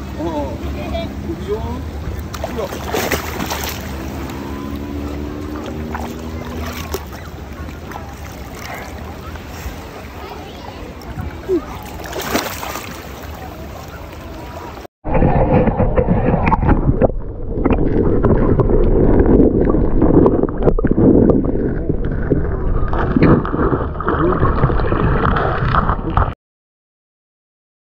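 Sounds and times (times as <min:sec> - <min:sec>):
muffled underwater churning: 0:00.0 - 0:26.4
water splashing around dog: 0:02.0 - 0:20.9
underwater knocks: 0:15.1 - 0:26.3.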